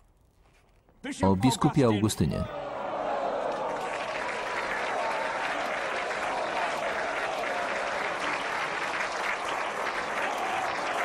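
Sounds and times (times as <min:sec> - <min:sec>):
crowd applauding: 0:02.5 - 0:11.0.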